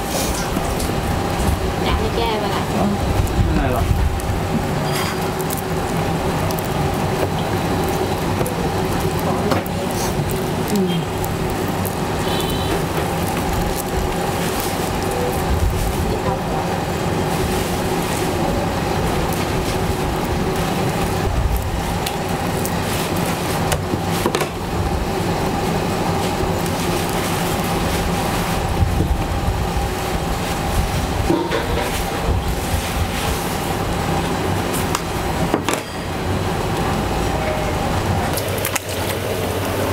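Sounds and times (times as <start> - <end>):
mechanical hum: 0.0 - 39.9.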